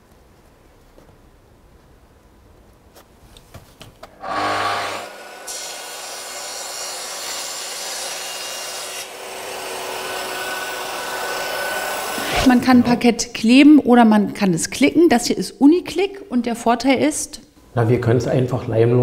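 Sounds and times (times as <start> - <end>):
table saw running: 4.2 - 12.3.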